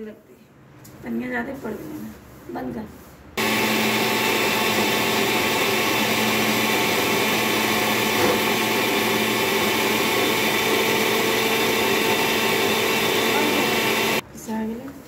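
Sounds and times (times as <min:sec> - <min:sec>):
mixer grinder grinding: 0:03.4 - 0:14.2.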